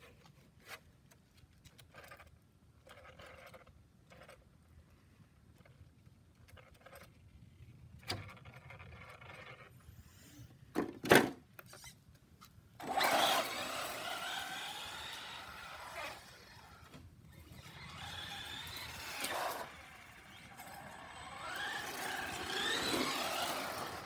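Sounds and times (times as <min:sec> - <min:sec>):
electric motor whining: 0:12.8 - 0:24.0
tyres rushing on concrete: 0:17.6 - 0:24.0.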